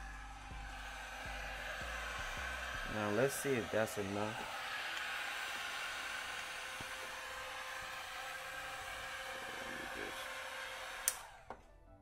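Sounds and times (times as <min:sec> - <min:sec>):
heat gun blowing: 0:00.0 - 0:11.6
heat gun switch click: 0:11.0 - 0:11.6.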